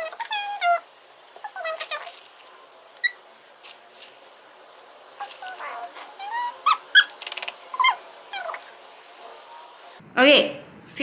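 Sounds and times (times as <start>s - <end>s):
pet animal high cries: 5.2s - 8.6s.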